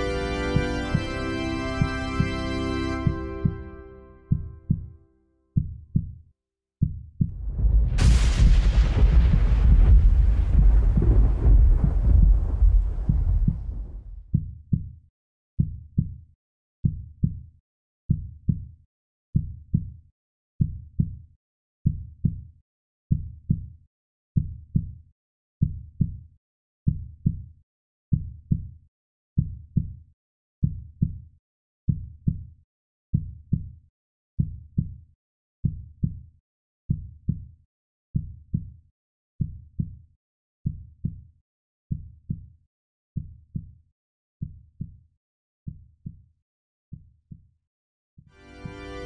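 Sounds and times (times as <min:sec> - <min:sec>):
heartbeat thumps: 0:03.0 - 0:04.9, 0:06.8 - 0:14.8.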